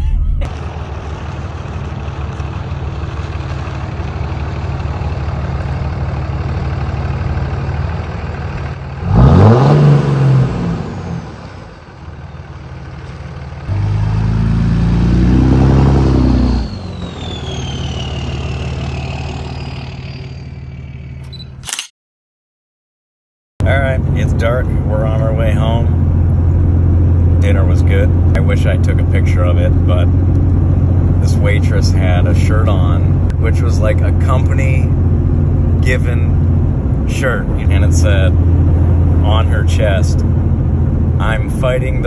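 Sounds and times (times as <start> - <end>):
diesel engine revving: 0.0 - 21.4, 23.6 - 42.0
turbo whistle falling in pitch: 16.5 - 19.1.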